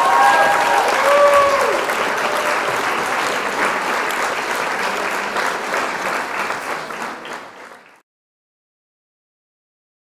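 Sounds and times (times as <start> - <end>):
crowd applauding: 0.0 - 8.0.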